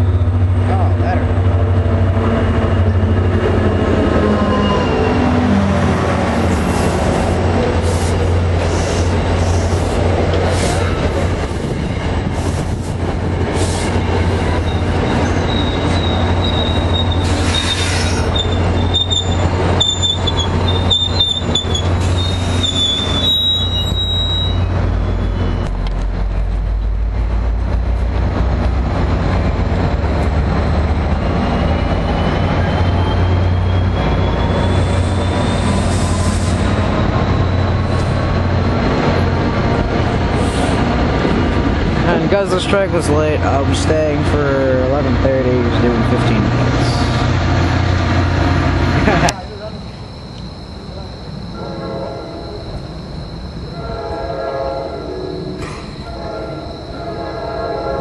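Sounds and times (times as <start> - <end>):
diesel locomotive engine: 0.0 - 58.0
brake squeal: 4.4 - 5.4, 14.6 - 25.8, 31.4 - 38.2, 49.4 - 54.2, 54.8 - 58.0.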